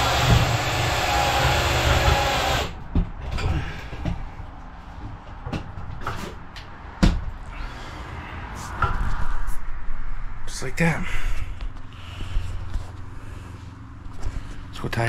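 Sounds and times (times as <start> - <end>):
loud vehicle noise: 0.0 - 14.9.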